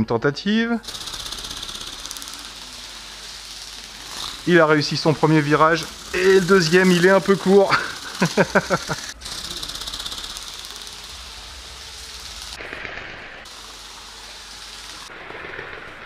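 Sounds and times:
toy bird wings fluttering: 0:00.8 - 0:16.0.

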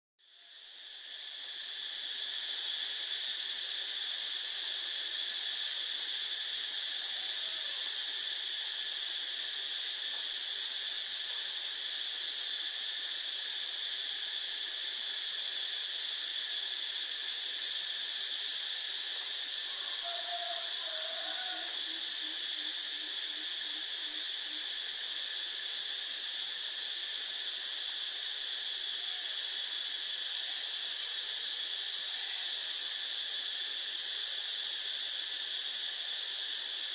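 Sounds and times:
hiss: 0:00.2 - 0:36.9
insect chorus drone: 0:00.2 - 0:36.9.

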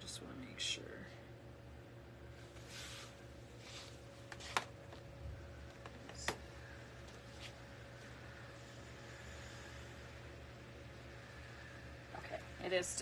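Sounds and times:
faint steady hum: 0:00.0 - 0:13.0
soft handling rustles: 0:02.4 - 0:06.4, 0:07.0 - 0:07.6.

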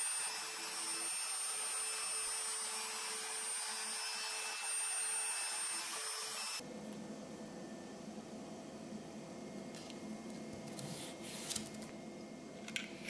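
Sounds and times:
router spindle motor whine: 0:00.0 - 0:06.6.

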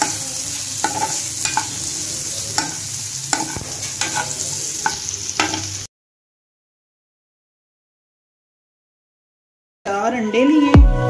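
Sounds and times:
metal spoon scraping and knocking pan: 0:00.0 - 0:05.8
potatoes sizzling in a frying pan: 0:00.0 - 0:05.9.

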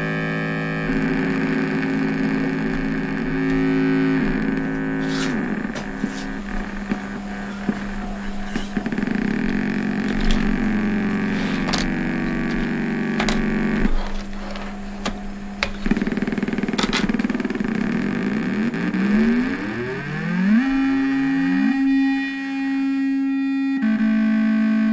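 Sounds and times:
buzzy synth drone: 0:00.0 - 0:24.9
sharp clicks of modules handled: 0:05.1 - 0:17.9.

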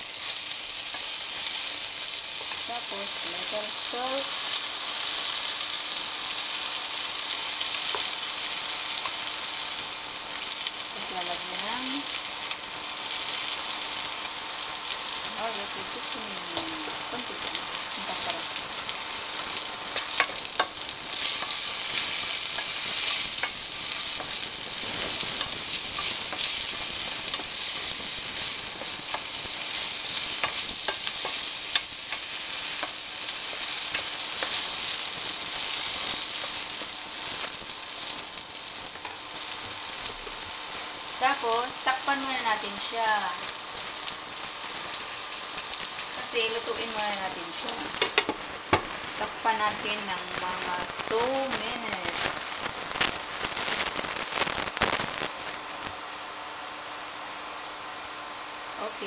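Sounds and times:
vegetables sizzling in oil: 0:00.0 - 0:59.0
spatula clicking and scraping pan: 0:19.9 - 0:36.6.

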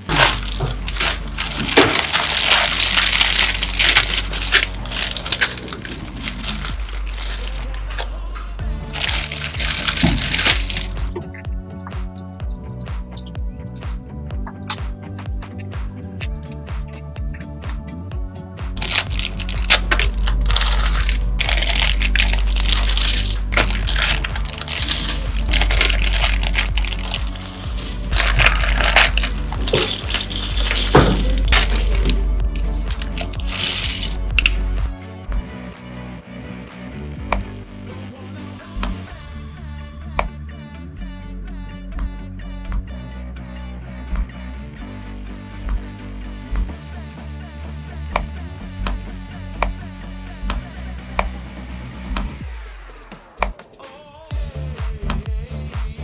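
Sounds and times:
plastic bricks clattering: 0:00.0 - 0:07.7, 0:08.8 - 0:11.0, 0:18.8 - 0:34.2
plastic bags rustling: 0:00.0 - 0:08.1, 0:08.7 - 0:11.1, 0:18.8 - 0:34.2
plastic shrink wrap tearing: 0:00.0 - 0:08.1, 0:08.8 - 0:11.1, 0:18.8 - 0:34.2.

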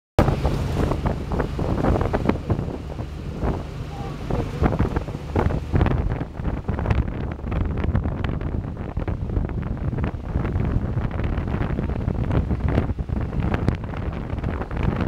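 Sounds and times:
small engine droning: 0:00.2 - 0:08.4
wind buffeting microphone: 0:00.2 - 0:15.0.

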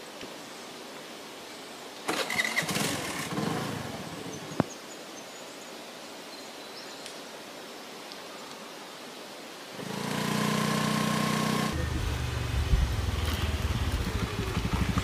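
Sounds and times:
motor scooter engine: 0:02.1 - 0:04.0, 0:09.8 - 0:15.0.

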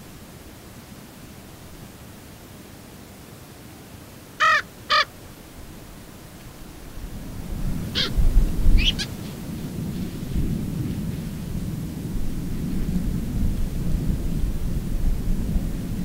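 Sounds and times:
crow cawing: 0:04.4 - 0:05.1, 0:08.0 - 0:08.2, 0:08.8 - 0:09.4
thin bird calls: 0:08.0 - 0:09.4.

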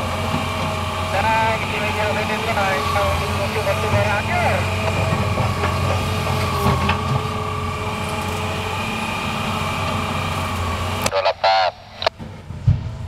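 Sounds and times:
excavator diesel engine under load: 0:00.0 - 0:13.0.

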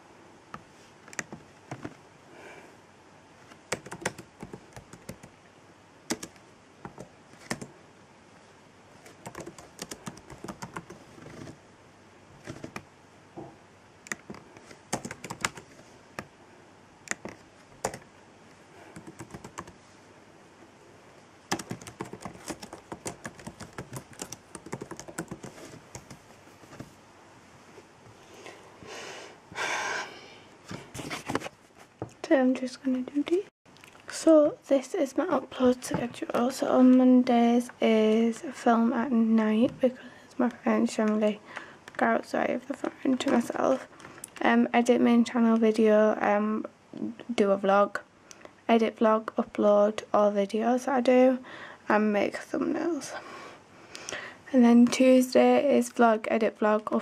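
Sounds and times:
laptop keyboard typing: 0:01.1 - 0:01.9, 0:03.6 - 0:05.4, 0:06.1 - 0:07.7, 0:09.0 - 0:11.6, 0:12.4 - 0:12.9, 0:14.1 - 0:16.3, 0:17.1 - 0:18.1, 0:18.9 - 0:19.8, 0:21.5 - 0:26.2.

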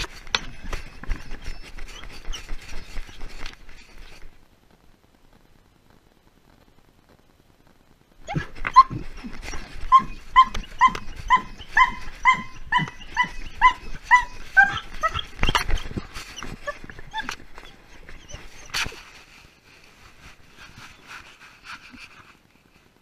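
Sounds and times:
dog yipping: 0:08.2 - 0:19.0.

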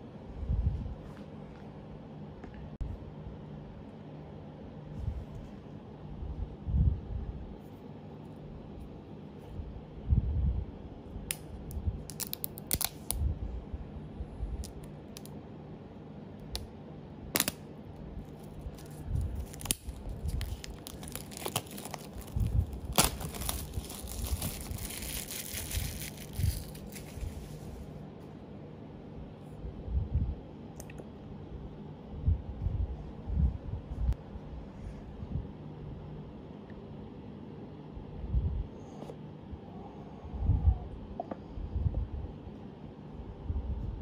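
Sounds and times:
plastic wrap crackling and tearing: 0:12.1 - 0:13.1, 0:18.4 - 0:27.4.

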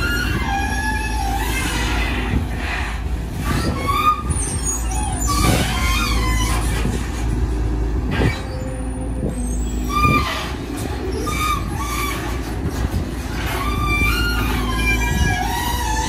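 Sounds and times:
diesel engine under load: 0:00.0 - 0:16.0
hydraulics moving: 0:00.0 - 0:16.0
short high-pitched squeals: 0:03.3 - 0:07.4, 0:08.1 - 0:16.0.

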